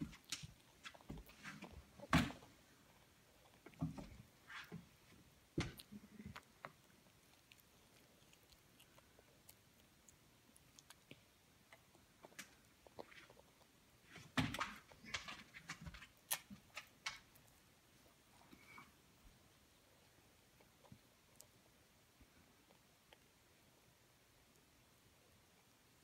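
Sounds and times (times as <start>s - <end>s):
chewing sounds: 0.1s - 14.2s.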